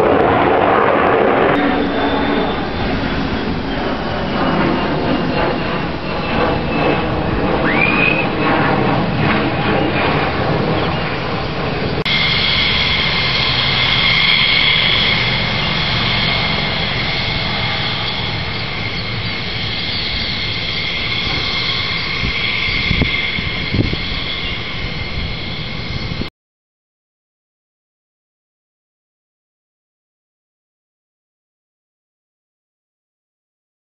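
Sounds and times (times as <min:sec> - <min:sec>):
high jet whine: 0:00.0 - 0:26.3
jet engine roar: 0:00.0 - 0:26.3.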